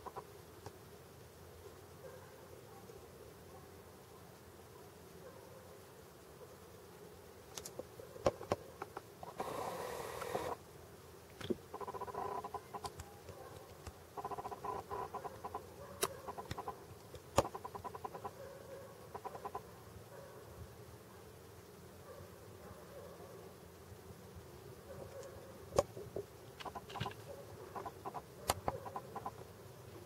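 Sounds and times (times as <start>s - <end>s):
burst of hissy noise: 9.2s - 10.6s
sharp clicks: 11.3s - 18.3s.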